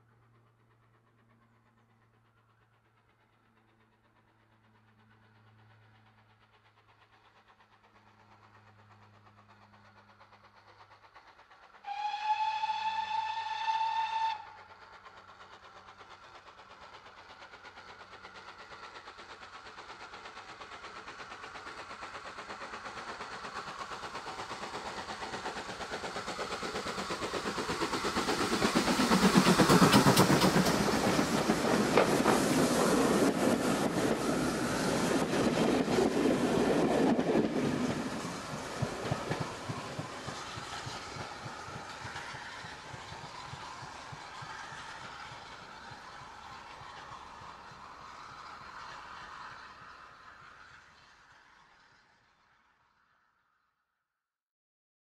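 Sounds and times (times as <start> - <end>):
steam train passing: 0.0 - 53.5
steam locomotive whistle: 11.8 - 14.7.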